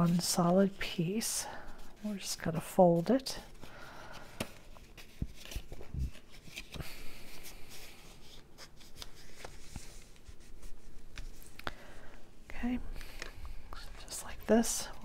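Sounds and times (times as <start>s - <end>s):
stiff paper rustling: 0.0s - 11.7s.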